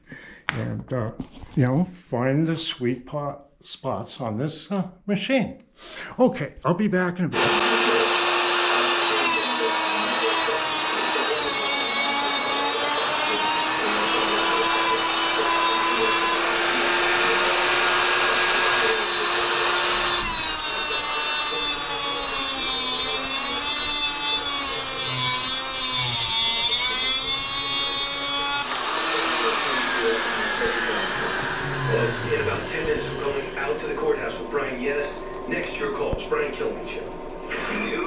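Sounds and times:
grinder winding down: 7.3 - 34.7
angle grinder grinding metal: 7.4 - 34.7.

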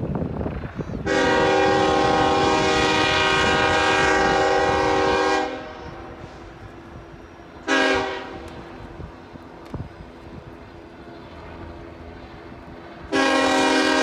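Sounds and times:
locomotive air horn blast: 1.0 - 6.5, 7.6 - 8.5, 13.1 - 14.0.

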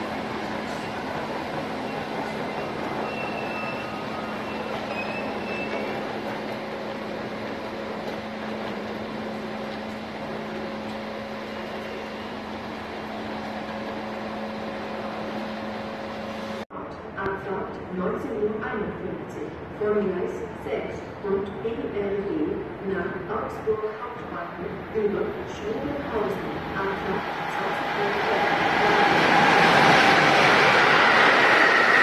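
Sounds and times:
train rumble with hum: 0.0 - 19.8, 20.4 - 32.0
faint high squeal: 1.9 - 6.0.

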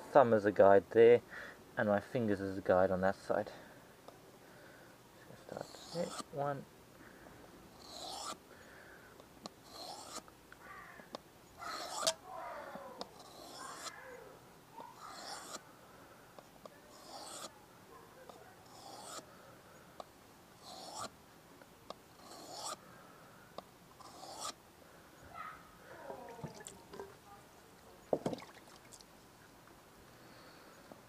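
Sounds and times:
knife scraping on whetstone: 5.5 - 6.3, 7.8 - 8.4, 9.6 - 10.2, 11.7 - 12.2, 13.1 - 14.0, 14.9 - 15.6, 16.9 - 17.5, 18.6 - 19.3, 20.6 - 21.1, 22.2 - 22.8, 24.0 - 24.6.

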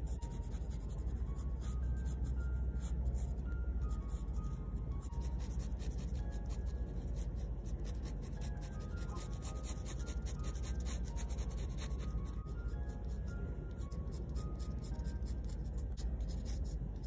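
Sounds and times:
pen nib scratching on paper: 0.0 - 2.2, 5.0 - 13.2, 14.1 - 17.0
faint background music: 0.0 - 17.0.

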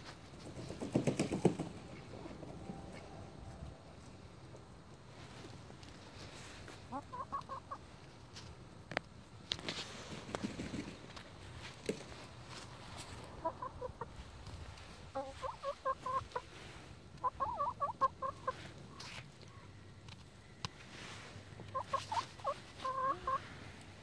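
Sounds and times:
hens clucking: 6.4 - 8.2, 12.8 - 19.6, 21.3 - 24.0.

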